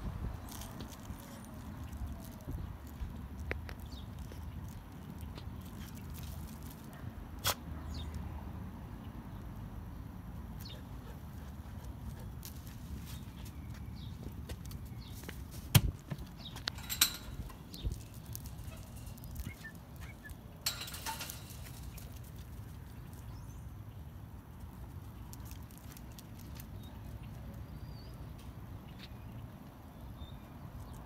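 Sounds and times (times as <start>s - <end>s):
dog claws clicking on pavers: 0.4s - 7.6s, 10.6s - 23.4s, 24.7s - 27.6s.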